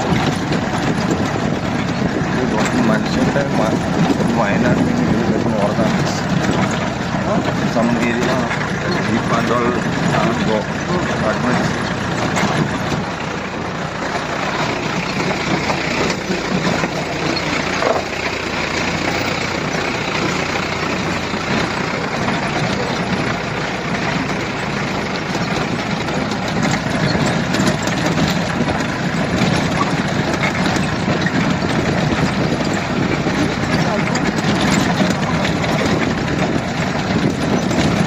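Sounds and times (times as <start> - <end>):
vehicle engine running: 0.0 - 38.0.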